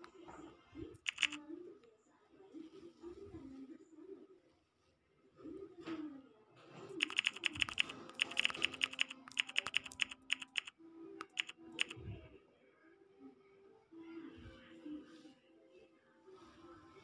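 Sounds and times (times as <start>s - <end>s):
faint background music: 0.0s - 17.0s
smartphone keyboard key clicks: 1.1s - 1.4s, 7.0s - 12.0s.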